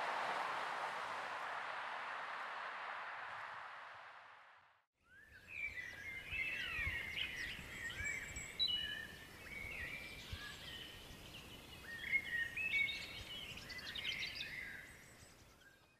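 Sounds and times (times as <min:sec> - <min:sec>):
steady hiss: 0:00.0 - 0:04.2
small birds chirping: 0:05.1 - 0:15.9.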